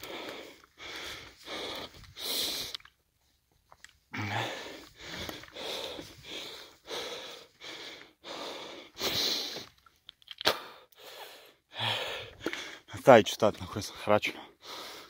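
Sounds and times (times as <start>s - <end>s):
man panting hard: 0.0s - 2.8s, 4.1s - 9.7s, 10.6s - 12.9s, 14.3s - 15.0s.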